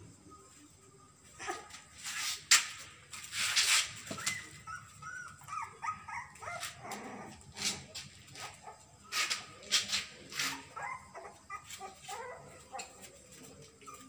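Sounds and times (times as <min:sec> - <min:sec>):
rustling: 0:01.4 - 0:14.0
puppy whimpering: 0:04.1 - 0:08.8, 0:10.4 - 0:14.0.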